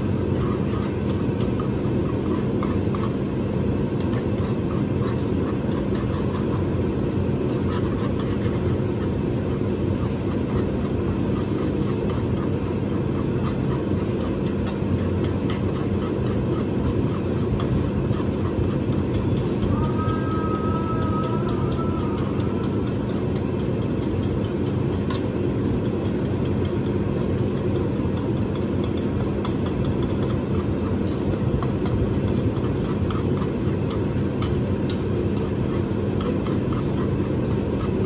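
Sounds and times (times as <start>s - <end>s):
extractor fan humming: 0.0s - 38.0s
high tones: 19.5s - 23.6s.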